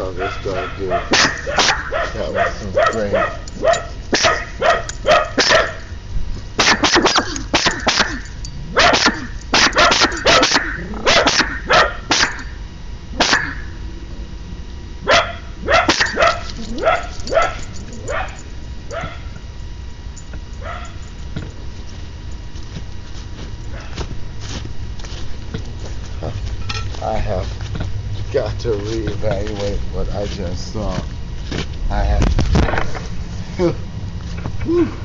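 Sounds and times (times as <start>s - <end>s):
dog barking: 0.1s - 5.9s, 6.6s - 12.5s, 13.2s - 13.7s, 15.0s - 19.4s, 20.6s - 21.0s, 23.7s - 24.0s.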